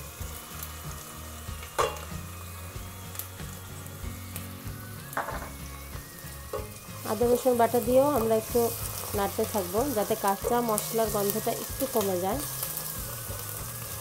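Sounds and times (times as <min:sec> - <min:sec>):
onions sizzling in oil: 0:00.0 - 0:14.0.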